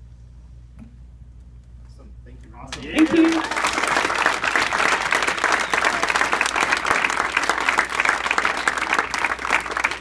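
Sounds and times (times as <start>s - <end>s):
crowd applauding: 2.8s - 10.0s.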